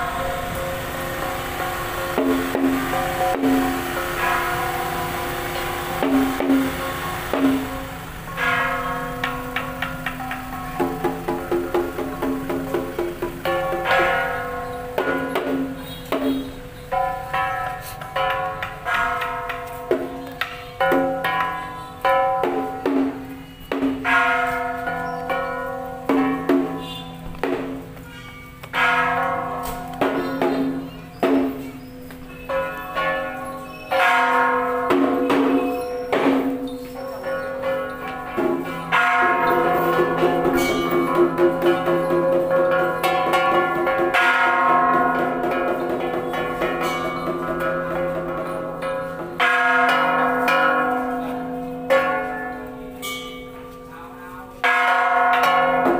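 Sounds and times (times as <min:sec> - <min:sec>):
ritual bells ringing: 0:00.0 - 0:55.9.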